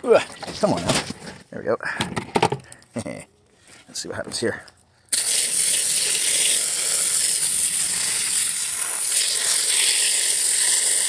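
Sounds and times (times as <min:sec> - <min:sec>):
hose water jet hissing: 0:05.1 - 0:11.0.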